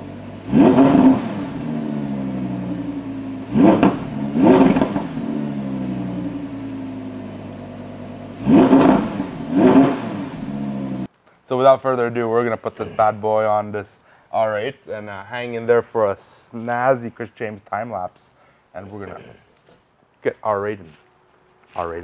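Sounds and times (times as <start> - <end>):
car engine idling and revving: 0.0 - 11.1.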